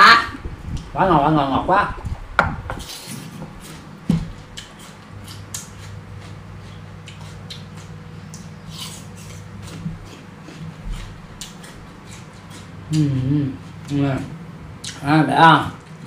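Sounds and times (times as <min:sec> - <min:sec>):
fruit crunching when chewed: 0:04.4 - 0:14.1.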